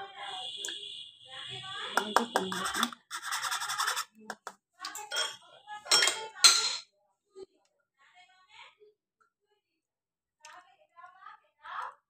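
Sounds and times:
steel strainer clinking against glass: 4.9s - 6.8s.

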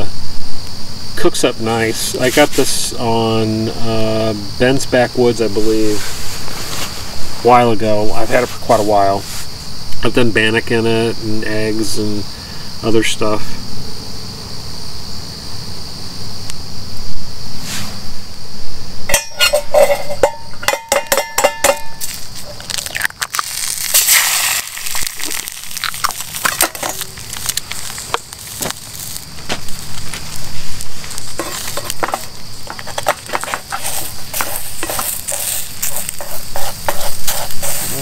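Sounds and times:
metal clinks on a steel pan: 19.1s - 22.0s
spatula scraping a pan: 19.1s - 22.5s, 26.1s - 28.0s, 30.9s - 38.0s
egg sizzling in a pan: 22.3s - 38.0s.

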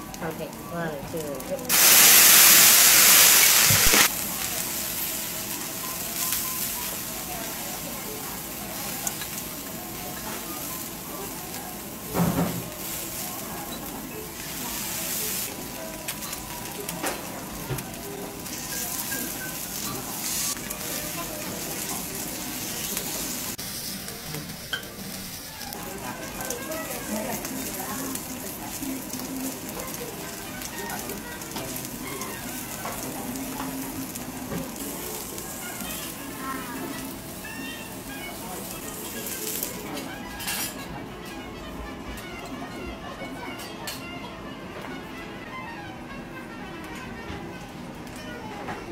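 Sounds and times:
steak sizzling on a griddle: 0.3s - 40.8s
fat spattering crackles: 1.2s - 6.9s.

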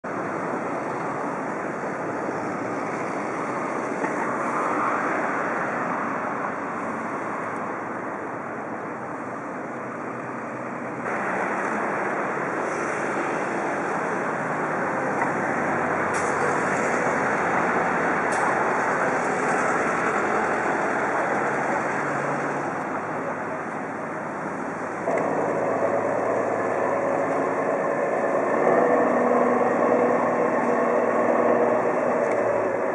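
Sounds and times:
wind: 0.0s - 32.9s
distant traffic: 0.1s - 32.9s.

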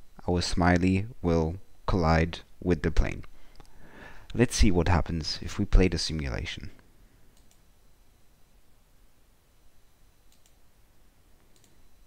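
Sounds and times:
computer mouse clicks: 7.4s - 7.7s, 10.3s - 10.6s, 11.4s - 11.8s.

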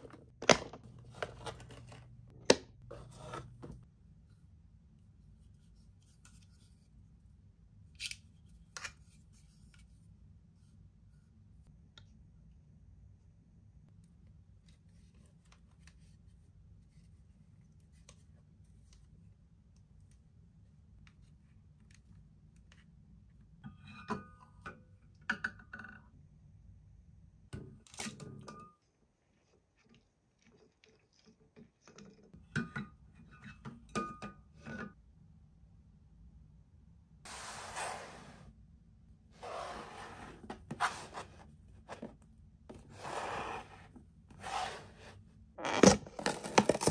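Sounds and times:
toys and packaging clicking and rustling: 0.0s - 2.4s, 45.8s - 46.9s.

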